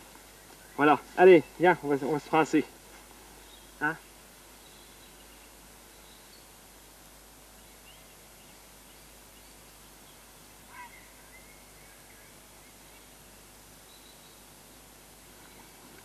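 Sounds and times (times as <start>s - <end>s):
faint outdoor hiss: 0.0s - 16.0s
faint bird chirping: 3.3s - 6.7s, 7.4s - 16.0s
short bird call: 10.7s - 12.0s.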